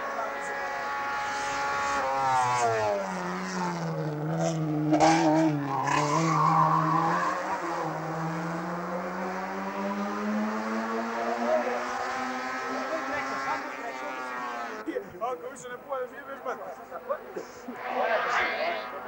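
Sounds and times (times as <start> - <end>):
car engine revving: 0.0 - 14.9, 16.3 - 19.0
tyre squeal: 5.6 - 7.8.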